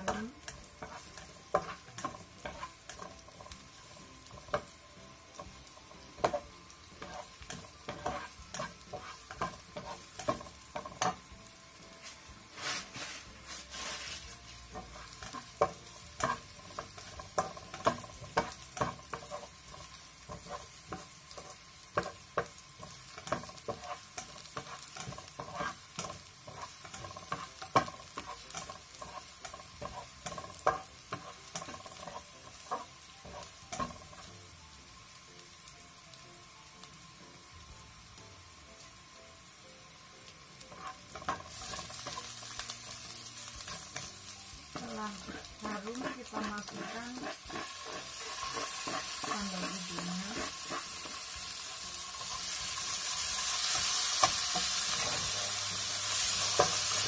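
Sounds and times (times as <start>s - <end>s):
spatula tapping and scraping pan: 0.0s - 11.3s, 13.7s - 34.3s, 40.7s - 51.2s
shallots sizzling in oil: 0.0s - 57.0s.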